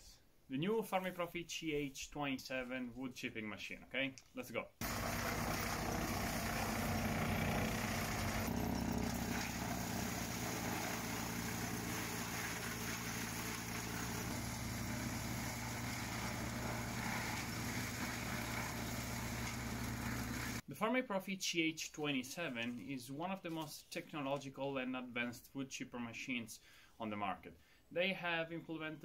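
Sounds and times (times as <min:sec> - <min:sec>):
tractor engine running under load: 0:04.8 - 0:20.6
wood chipper chipping branches: 0:04.8 - 0:20.6.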